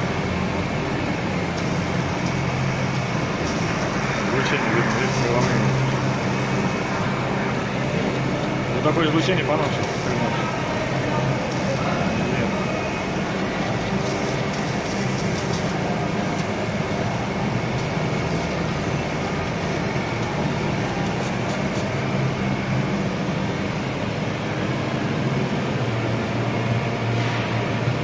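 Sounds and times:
laser marking machine humming: 0.0 - 22.2.

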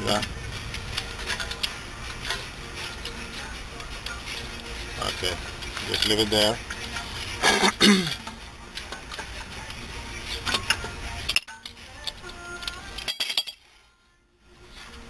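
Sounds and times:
metal clinks and knocks: 10.3 - 13.8.

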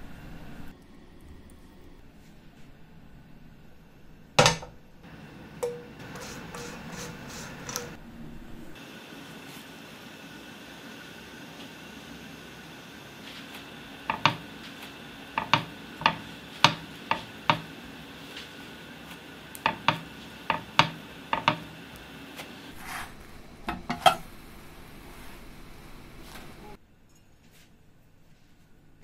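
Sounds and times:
spatula scraping pan: 6.0 - 8.0, 19.6 - 21.7, 22.7 - 24.3.

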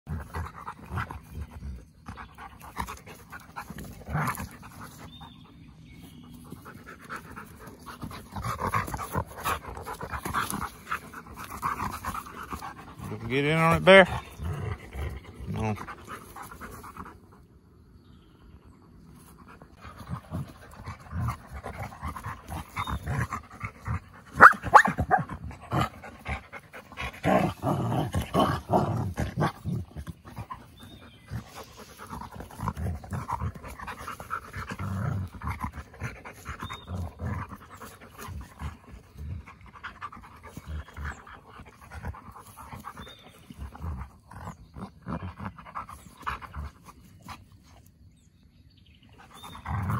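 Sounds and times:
dogs panting: 0.1 - 17.7, 18.8 - 48.2, 49.0 - 49.9.

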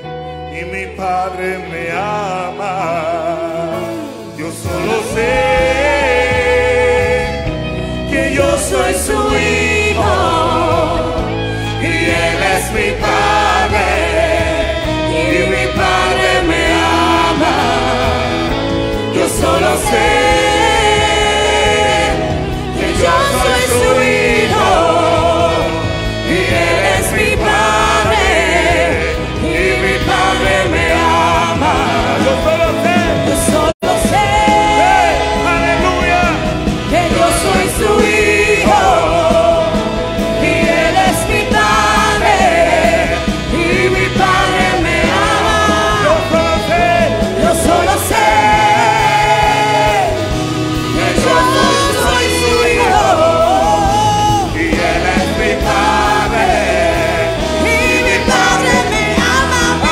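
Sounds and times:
choir singing: 0.0 - 59.9
instrumental backing with bass: 0.0 - 59.9
man singing into microphone: 0.4 - 7.4.

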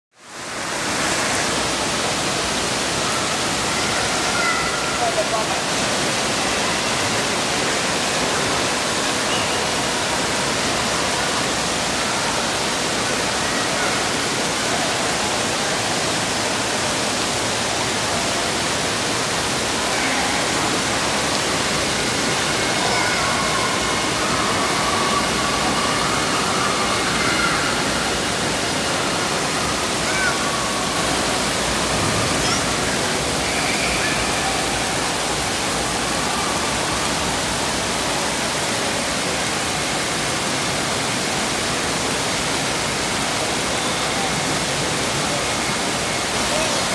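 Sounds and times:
water spraying and splashing: 0.4 - 46.9
children's voices: 3.0 - 5.4, 19.9 - 37.3.

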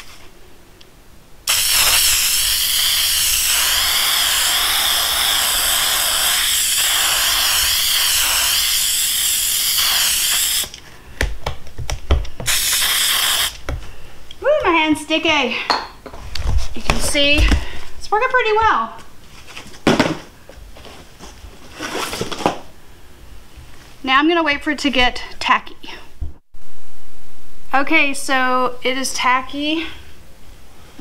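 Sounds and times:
aerosol can spraying: 1.5 - 10.8, 12.4 - 13.6.

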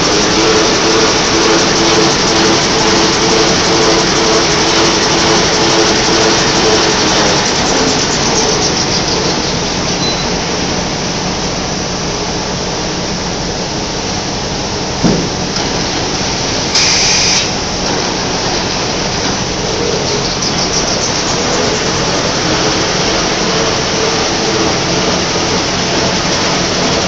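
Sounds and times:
factory machinery running: 0.0 - 27.0
sharp knock: 15.0 - 15.6
brief high hiss: 16.7 - 17.6.

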